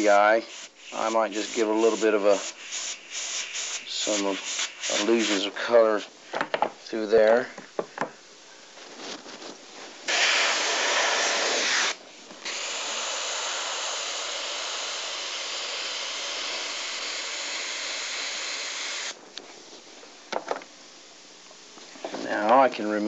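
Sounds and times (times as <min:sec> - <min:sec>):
airbrush air hiss: 0:00.0 - 0:06.1, 0:10.1 - 0:19.2.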